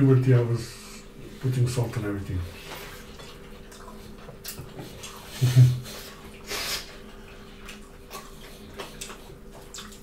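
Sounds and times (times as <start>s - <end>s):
chewing and lip smacking: 2.6s - 10.0s
hissing slurp: 5.3s - 7.0s.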